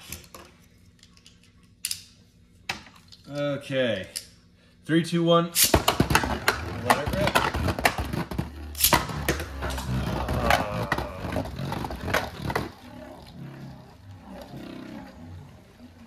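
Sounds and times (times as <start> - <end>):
spinning tops humming: 6.5 - 16.0.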